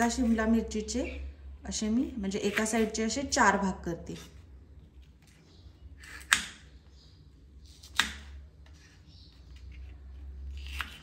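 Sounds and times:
knife cutting pepper on board: 0.0s - 4.4s, 6.0s - 6.6s, 7.6s - 9.0s, 10.5s - 11.0s.

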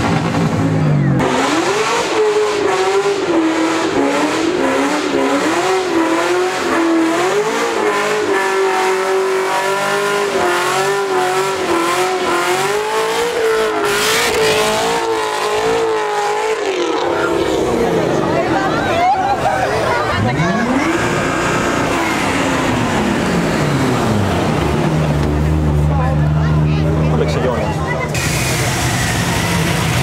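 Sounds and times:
car engine at high revs: 0.0s - 30.0s
tyres spinning and squealing: 6.4s - 24.4s.

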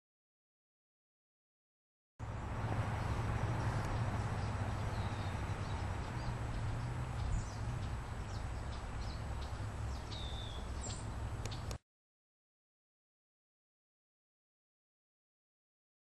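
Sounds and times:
songbirds chipping: 2.2s - 11.8s.

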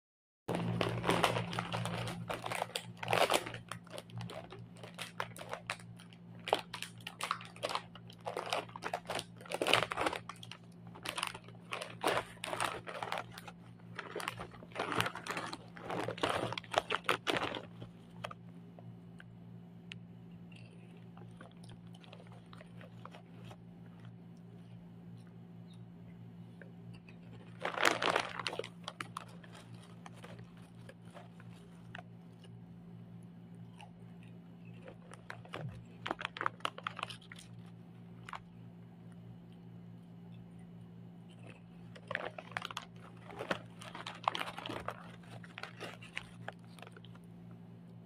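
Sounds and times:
plastic bags crinkling: 0.5s - 18.4s, 20.5s - 24.8s, 26.9s - 32.5s, 34.6s - 38.5s, 41.3s - 47.3s
low steady hum: 0.5s - 48.0s.

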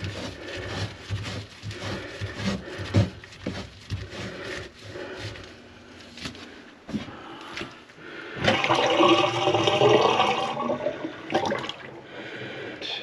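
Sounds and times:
water gushing: 8.4s - 12.0s.

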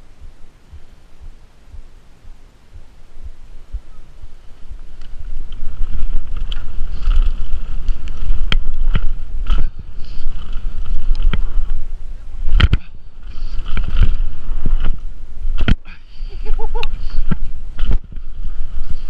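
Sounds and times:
wind on microphone: 0.0s - 19.0s
bike knocking and rattling: 2.8s - 19.0s.

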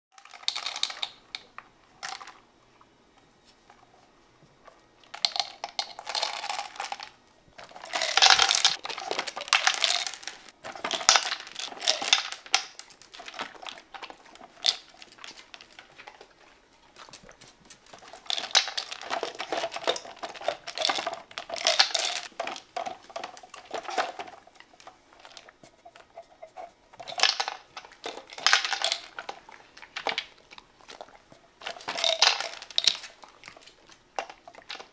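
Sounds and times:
dog crunching dry kibble: 0.1s - 2.4s, 4.6s - 34.9s
plastic tubes clicking and rattling: 0.1s - 2.4s, 5.0s - 34.9s.

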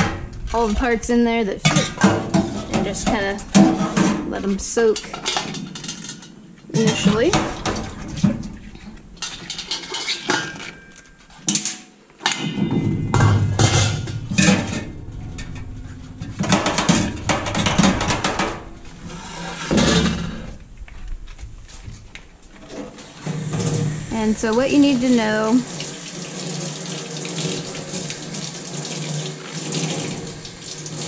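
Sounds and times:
metal parts clanking in sink: 1.6s - 20.6s.

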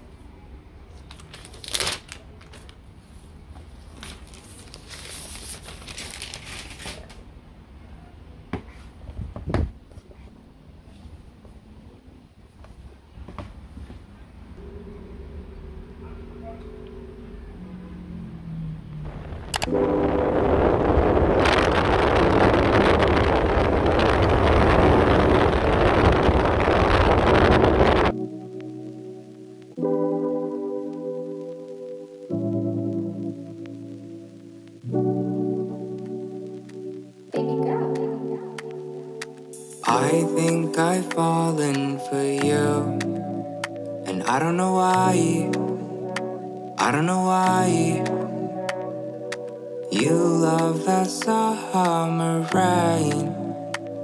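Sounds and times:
plastic sheet crinkling: 0.9s - 2.8s, 3.8s - 7.2s
wind and road noise: 16.8s - 28.2s
wind buffeting microphone: 20.2s - 28.1s.

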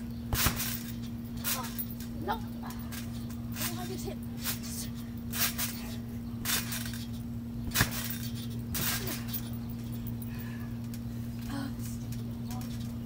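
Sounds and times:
trampoline springs creaking: 0.0s - 13.0s
trampoline sharp snap: 0.3s - 2.1s, 2.9s - 9.9s.

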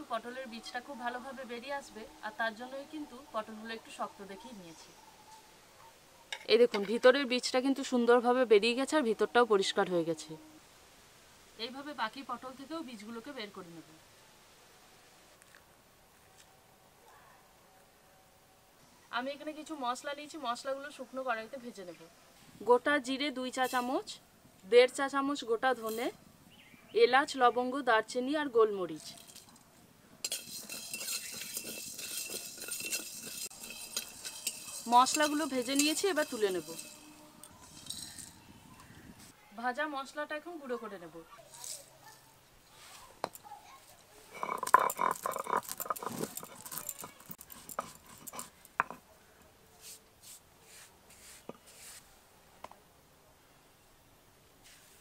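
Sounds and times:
seeds rattling against pan: 23.6s - 24.0s, 29.0s - 38.6s, 44.3s - 49.0s
metal spatula scraping pan: 30.2s - 38.4s
stone roller grinding spices: 30.2s - 38.5s, 44.3s - 49.0s
stone knocking on stone: 47.8s - 49.0s.

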